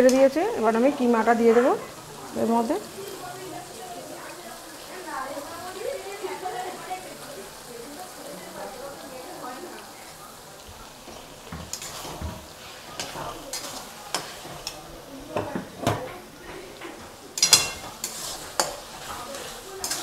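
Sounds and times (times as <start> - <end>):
low sizzle: 0.0 - 20.0
spatula scraping metal pan: 11.7 - 14.8, 17.4 - 20.0.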